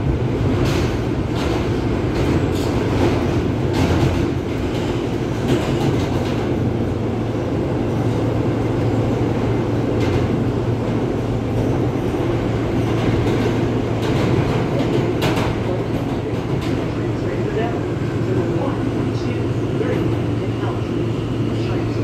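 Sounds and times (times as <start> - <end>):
subway wheels rumbling on rail: 0.0 - 22.0
track clacks: 0.5 - 6.7, 8.8 - 17.5.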